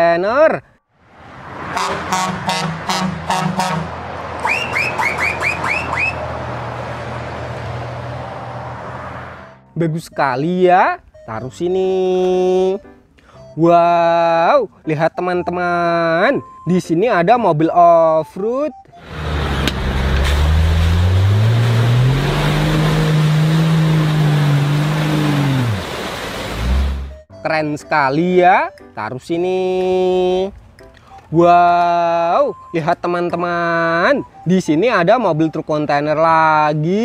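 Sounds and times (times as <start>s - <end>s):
road noise: 0.8s - 13.7s, 18.8s - 27.3s, 28.1s - 37.0s
truck engine drone: 1.0s - 9.8s, 18.9s - 27.3s
rising chirps: 4.4s - 6.4s
suv engine revving: 19.0s - 27.2s
tyres churning through mud: 19.0s - 27.2s.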